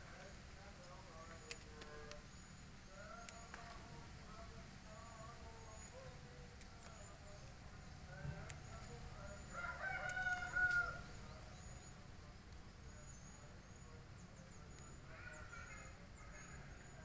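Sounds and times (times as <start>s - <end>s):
rooster crowing: 9.4s - 11.1s.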